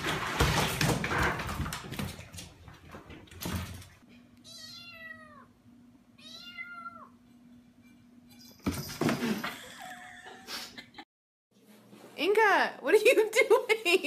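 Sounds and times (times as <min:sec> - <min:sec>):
kitten meowing: 0:04.4 - 0:05.5, 0:06.2 - 0:07.1.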